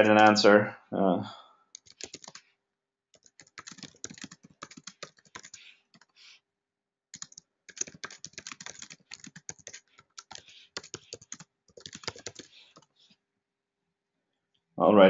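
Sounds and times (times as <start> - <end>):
typing on computer keyboard: 1.8 - 2.5, 3.2 - 6.2, 7.2 - 12.9.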